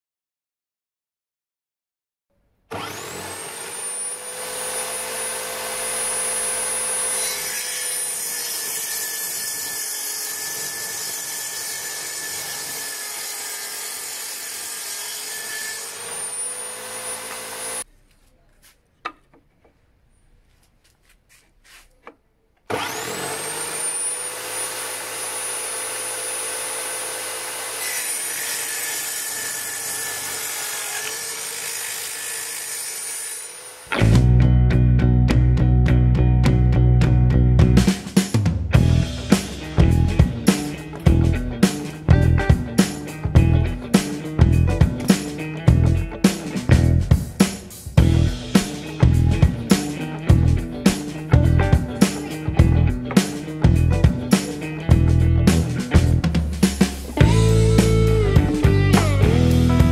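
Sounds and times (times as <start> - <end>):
table saw cutting wood: 2.7 - 17.9, 22.7 - 34.2, 37.8 - 51.3, 53.1 - 59.9.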